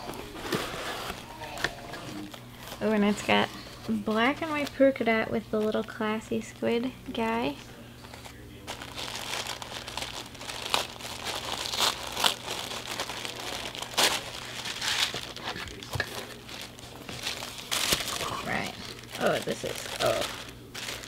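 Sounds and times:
tissue paper crinkling: 8.0 - 21.0.

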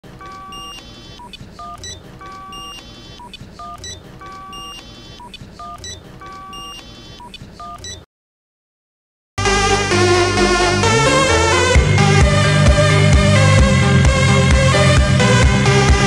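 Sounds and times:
phone text alert beeps and chimes: 0.1 - 8.1.

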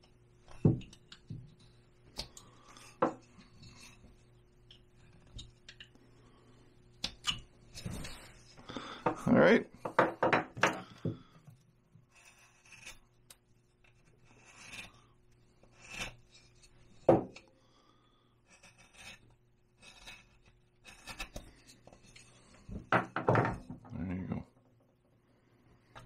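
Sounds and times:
knocks: 9.8 - 10.8, 22.9 - 23.9
carving gouge scraping wood: 12.0 - 17.2, 18.4 - 23.0.

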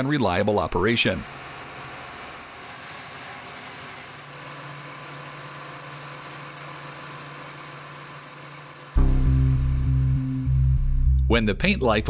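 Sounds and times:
heavy equipment engine running: 0.3 - 12.0
low drone: 9.0 - 12.0.

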